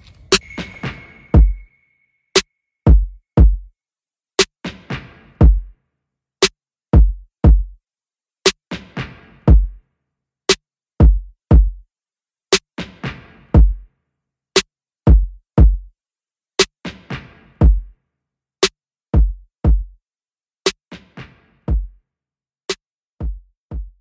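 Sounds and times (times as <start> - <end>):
deep kick drums: 2.9 - 3.7, 5.4 - 5.7, 7.0 - 7.8, 9.5 - 9.8, 11.0 - 11.8, 13.6 - 13.8, 15.1 - 15.9, 17.6 - 17.9, 19.2 - 20.0, 21.7 - 22.0, 23.2 - 24.0.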